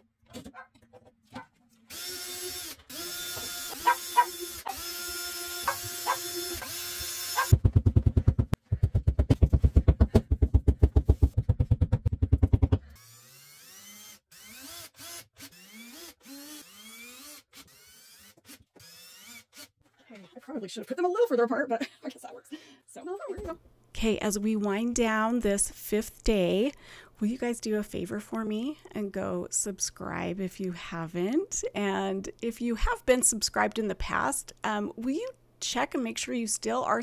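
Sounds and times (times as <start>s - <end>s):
drill-driver whirring: 1.9s - 7.5s, 12.9s - 19.8s
power drill running: 1.9s - 7.6s, 12.9s - 19.7s.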